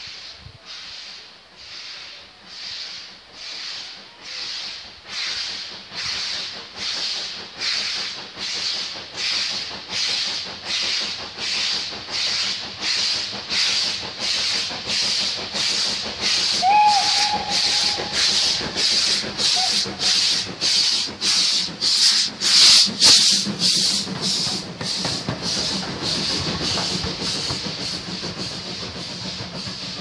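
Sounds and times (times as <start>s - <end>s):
steam locomotive exhaust chuffs: 0.0s - 30.0s
train whistle: 16.6s - 18.6s, 19.5s - 20.1s.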